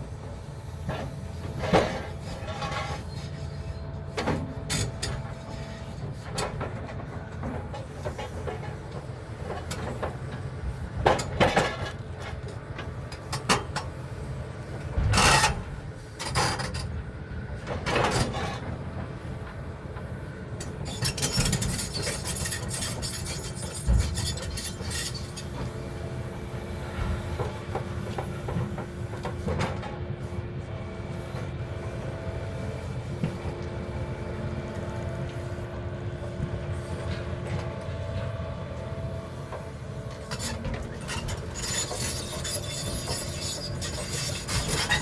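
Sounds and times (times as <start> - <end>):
diesel engine drone: 0.0 - 45.0
rattling clatter of metal scrap: 0.9 - 3.5, 11.0 - 12.6, 15.0 - 15.6, 17.7 - 18.7, 20.6 - 25.7, 39.5 - 45.0.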